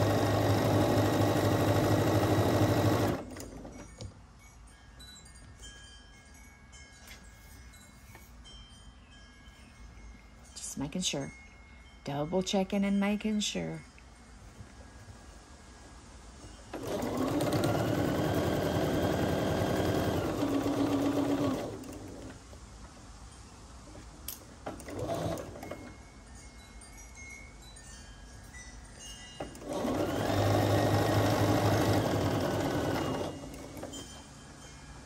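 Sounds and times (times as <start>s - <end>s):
sewing machine stitching: 0.0s - 3.8s, 16.7s - 22.3s, 24.7s - 25.8s, 29.5s - 33.9s.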